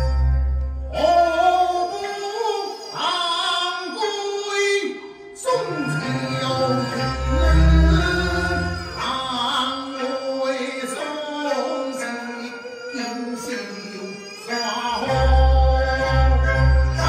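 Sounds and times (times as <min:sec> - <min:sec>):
instrumental accompaniment: 0:00.0 - 0:02.9
man singing opera into microphone: 0:00.9 - 0:17.0.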